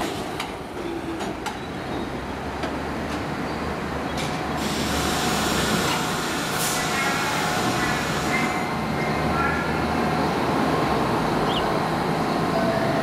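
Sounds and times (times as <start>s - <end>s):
subway car hum: 0.0s - 13.0s
air hiss: 4.6s - 8.4s.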